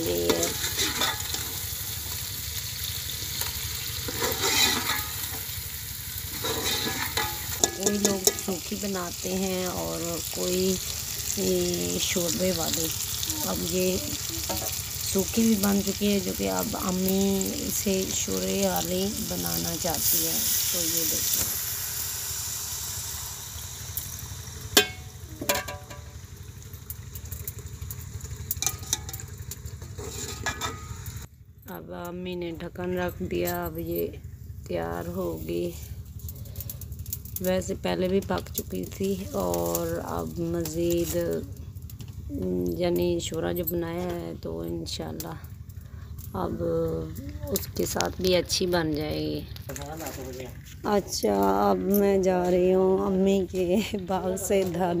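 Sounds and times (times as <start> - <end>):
metal spoon stirring: 0.0 - 1.6, 4.0 - 5.4, 6.3 - 8.6
curry sizzling in a pot: 0.0 - 31.3
wood fire crackling: 0.0 - 55.0
metal ladle clinking on pot: 6.4 - 8.5.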